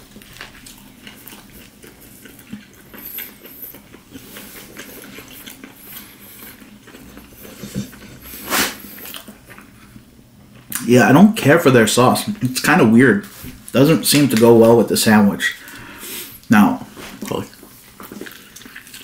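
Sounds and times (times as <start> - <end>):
person chewing crispy food: 0.0 - 10.9, 15.5 - 19.0.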